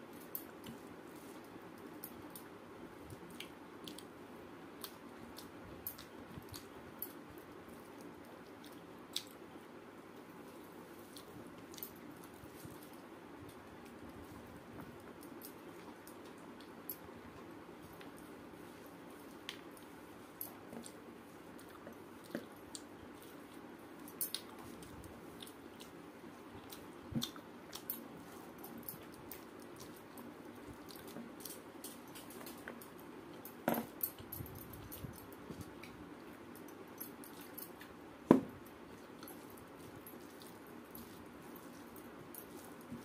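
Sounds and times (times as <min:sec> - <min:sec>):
steady low hum: 0:00.0 - 0:43.0
chewing: 0:04.8 - 0:09.4, 0:17.8 - 0:38.0, 0:38.9 - 0:43.0.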